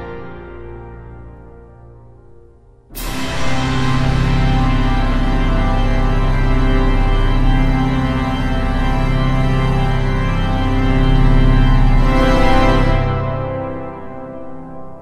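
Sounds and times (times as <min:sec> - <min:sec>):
organ playing sustained chords: 0:03.0 - 0:15.0.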